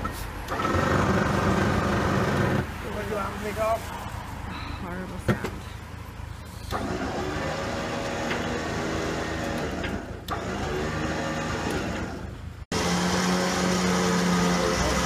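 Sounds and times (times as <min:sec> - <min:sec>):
truck machinery humming: 0:05.3 - 0:15.0.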